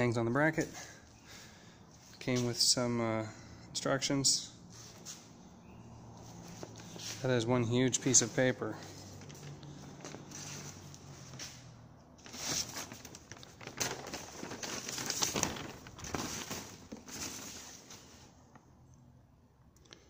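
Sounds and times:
paper rustling and crinkling: 8.0s - 18.6s.

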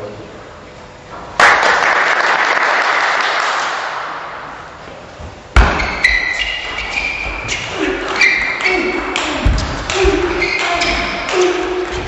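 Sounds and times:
spectators applauding: 1.4s - 4.2s
shoes squeaking on floor: 5.6s - 12.0s.

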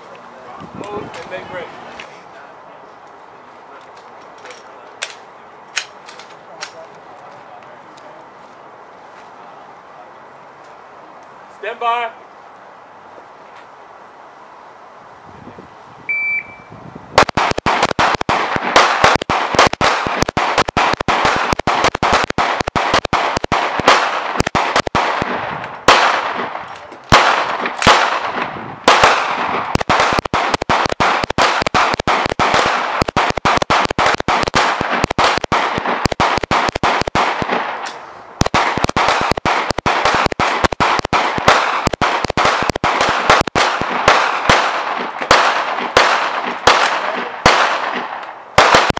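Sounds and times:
short high beep: 16.1s - 16.8s
rapid handgun fire: 17.2s - 37.8s, 38.4s - 48.9s.

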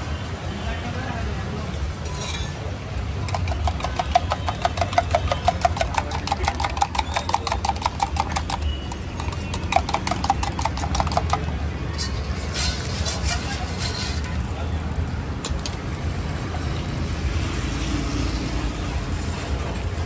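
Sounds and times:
steel utensil clinking on steel: 2.0s - 2.7s.

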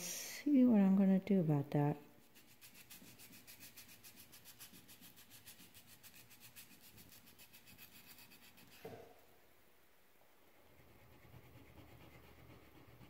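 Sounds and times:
hand rubbing wooden knife: 2.2s - 9.1s.

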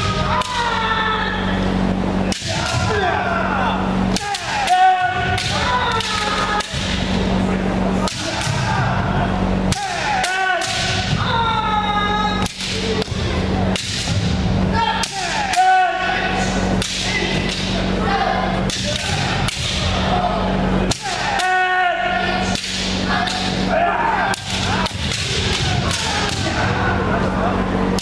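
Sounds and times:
long shouts: 0.0s - 1.6s, 8.2s - 12.5s, 14.7s - 16.5s, 21.0s - 22.4s.

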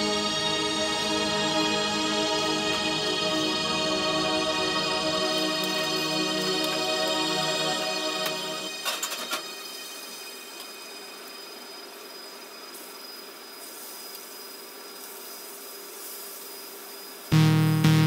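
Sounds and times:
kitchen hum and hiss: 8.9s - 17.3s.

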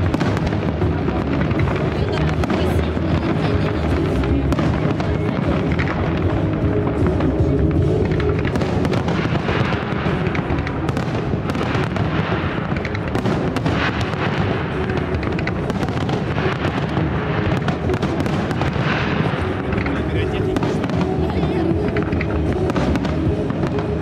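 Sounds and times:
fireworks crackling: 0.0s - 24.0s.

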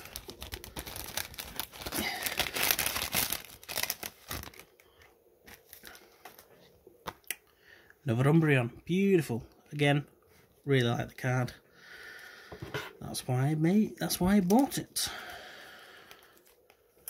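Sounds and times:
packaging crinkling and tearing: 0.0s - 6.5s.

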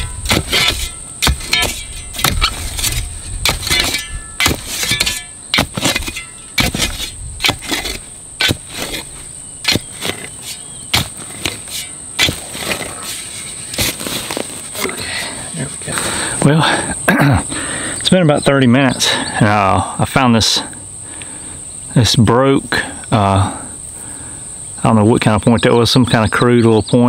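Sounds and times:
shovel digging into soil: 0.0s - 15.0s.

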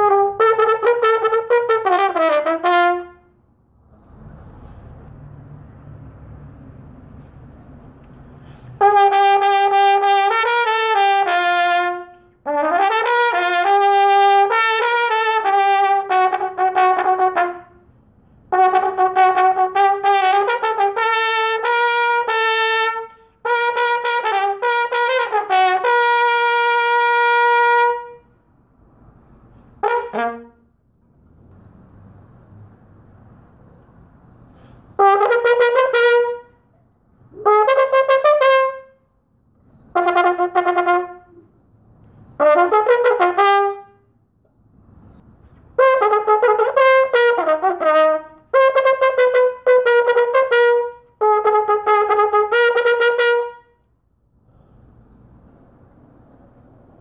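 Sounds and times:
brass horn playing solo: 0.0s - 3.4s, 8.8s - 17.9s, 18.5s - 28.3s, 29.8s - 30.7s, 34.9s - 36.6s, 37.4s - 39.0s, 40.0s - 41.4s, 42.4s - 44.1s, 45.8s - 53.8s
player breathing: 8.3s - 8.8s, 54.4s - 55.1s.

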